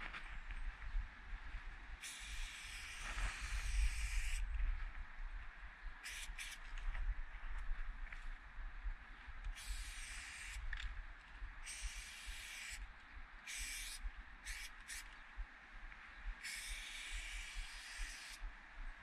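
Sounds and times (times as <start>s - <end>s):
spray paint can hissing: 2.0s - 4.4s, 6.0s - 6.6s, 9.6s - 10.6s, 11.6s - 12.8s, 13.5s - 15.0s, 16.4s - 18.4s.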